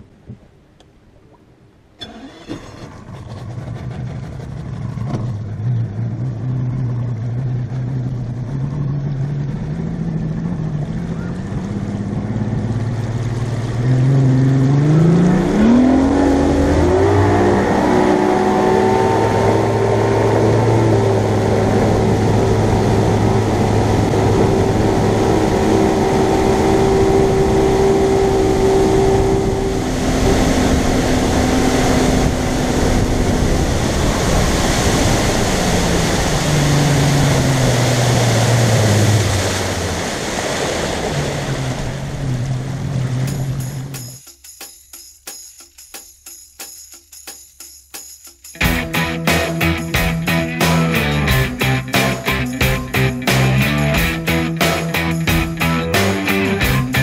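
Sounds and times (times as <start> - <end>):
outboard motor running: 2.0 - 44.2, 48.6 - 57.0.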